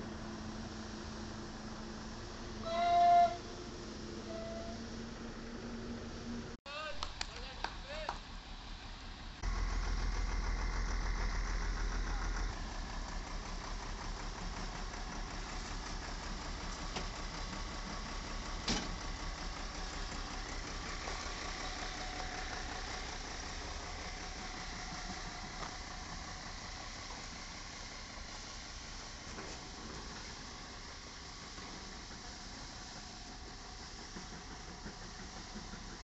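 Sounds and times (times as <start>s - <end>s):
diesel truck engine idling: 7.3s - 36.0s.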